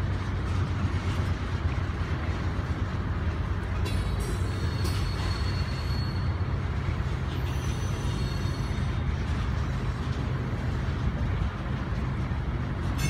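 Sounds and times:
train wheels rumbling on rail: 0.0 - 13.0
high wheel squeals: 3.9 - 9.1.

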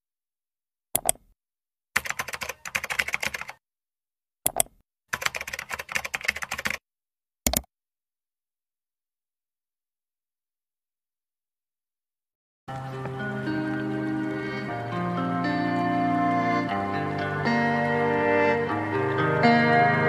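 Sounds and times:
keyboard typing: 1.0 - 1.3, 2.0 - 3.6, 4.5 - 6.8, 7.5 - 7.7.

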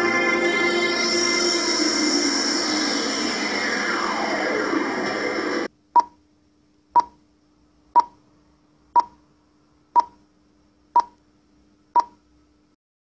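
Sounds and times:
faint steady hum: 0.0 - 12.8
short electronic beeps: 6.0 - 6.2, 7.0 - 7.2, 8.0 - 8.2, 9.0 - 9.2, 12.0 - 12.2.

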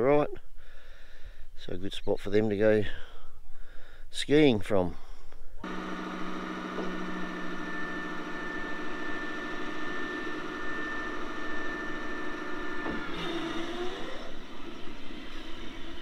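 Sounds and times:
hydraulic hoist whine: 5.6 - 16.0.

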